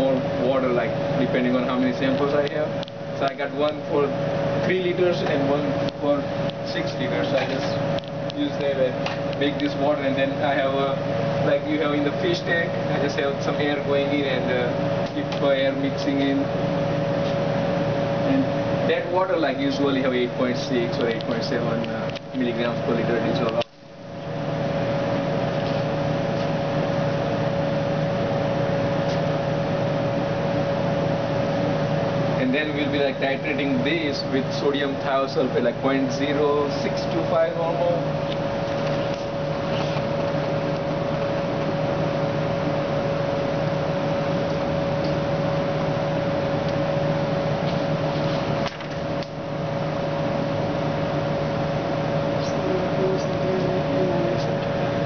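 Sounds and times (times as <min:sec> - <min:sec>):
equipment humming: 0:00.0 - 0:55.0.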